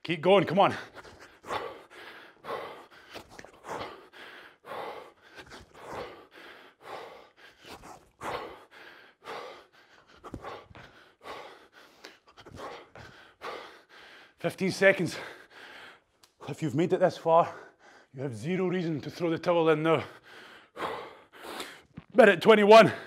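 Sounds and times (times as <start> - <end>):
man panting: 0.6 - 16.2, 17.4 - 18.2, 19.8 - 22.0.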